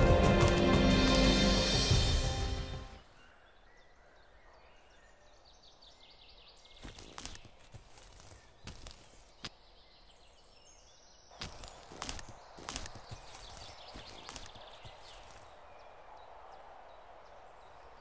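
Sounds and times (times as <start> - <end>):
footsteps crunching on dry leaves: 0.0 - 2.0, 6.8 - 9.5, 11.3 - 15.8.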